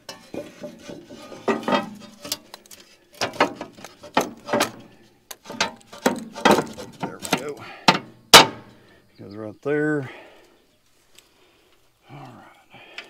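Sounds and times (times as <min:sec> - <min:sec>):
metal clanks with ringing: 0:00.0 - 0:02.4, 0:05.5 - 0:08.7.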